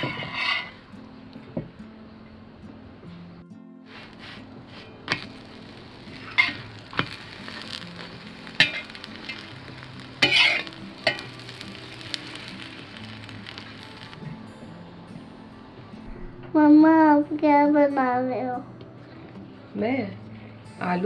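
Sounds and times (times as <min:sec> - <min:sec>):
spatula scraping a pan: 0:00.0 - 0:00.8, 0:03.9 - 0:13.6
flatbread sizzling in oil: 0:00.0 - 0:00.9, 0:03.9 - 0:14.3.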